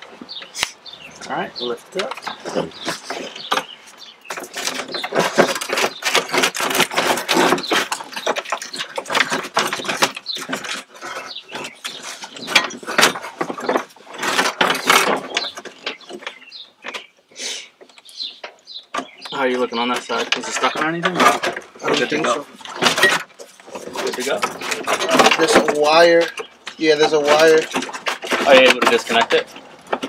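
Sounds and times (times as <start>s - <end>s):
plastic dashboard clattering: 2.0s - 17.1s, 18.3s - 30.0s.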